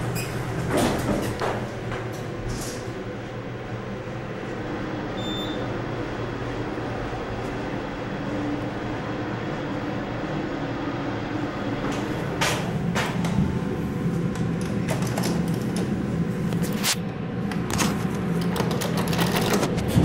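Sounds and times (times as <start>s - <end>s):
elevator hum: 0.0s - 20.0s.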